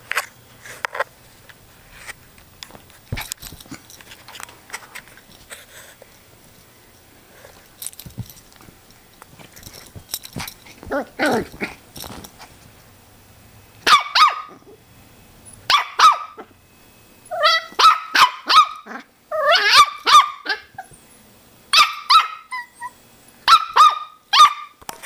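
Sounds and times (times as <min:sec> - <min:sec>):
puppy yipping: 0:13.9 - 0:14.6, 0:15.7 - 0:16.4, 0:17.3 - 0:18.8, 0:19.4 - 0:20.9, 0:21.8 - 0:24.8.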